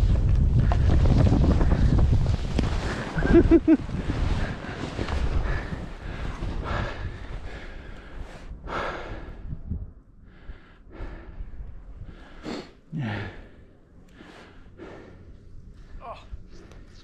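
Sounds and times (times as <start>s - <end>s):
snowboard swishing through powder: 1.0s - 6.6s
heavy breathing: 4.4s - 9.5s, 10.2s - 17.0s
low grunt: 12.9s - 13.5s.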